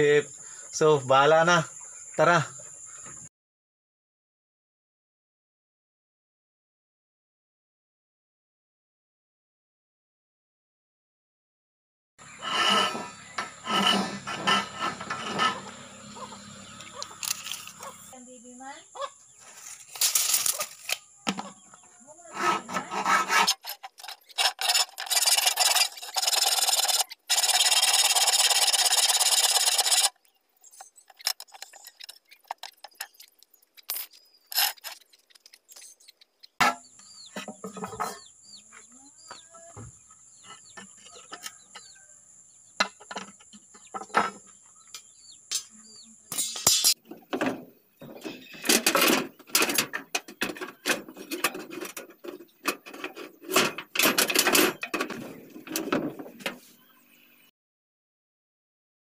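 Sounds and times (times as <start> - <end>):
rasping metal on rebar: 12.2 - 18.1, 22.2 - 36.8, 48.0 - 56.2.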